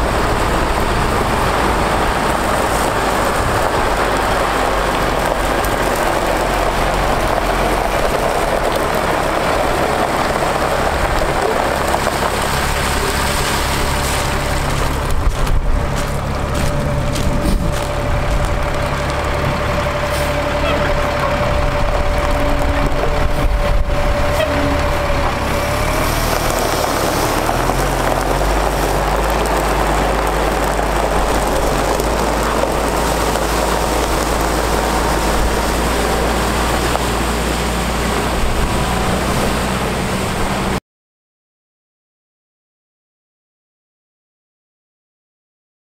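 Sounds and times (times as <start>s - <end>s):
diesel truck engine running: 0.0s - 40.8s
water falling onto gravel: 2.1s - 21.2s, 25.3s - 37.3s.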